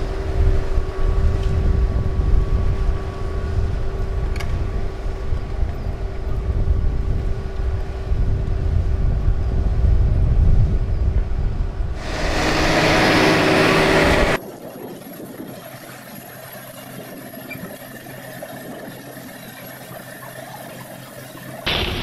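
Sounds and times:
loud rushing noise: 12.0 - 14.4
tractor diesel engine under load: 12.0 - 14.4.

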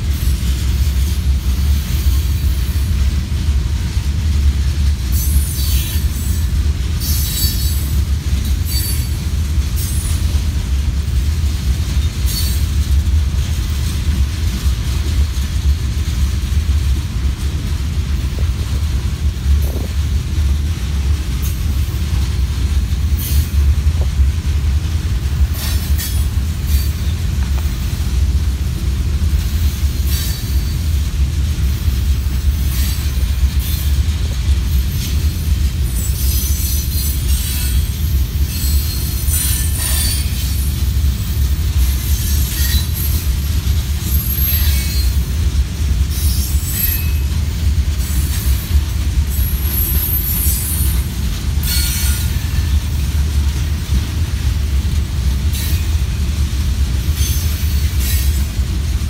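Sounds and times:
train wheels rumbling on rail: 0.0 - 59.0
high-pitched wheel squeals: 46.2 - 47.4.

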